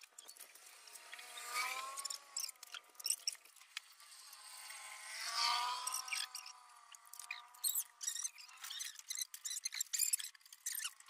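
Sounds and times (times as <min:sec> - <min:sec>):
vehicle engine hum: 0:00.1 - 0:11.0
wavering tones: 0:04.0 - 0:09.3
high chirps: 0:05.8 - 0:11.0.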